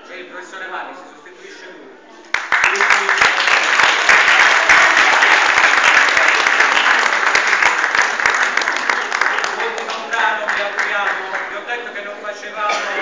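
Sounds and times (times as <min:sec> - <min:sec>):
audience applauding: 0:02.3 - 0:11.6.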